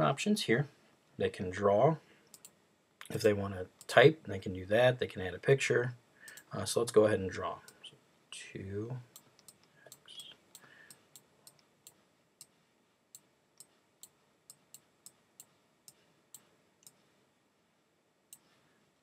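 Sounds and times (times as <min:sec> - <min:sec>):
computer mouse clicks: 0:02.3 - 0:02.6.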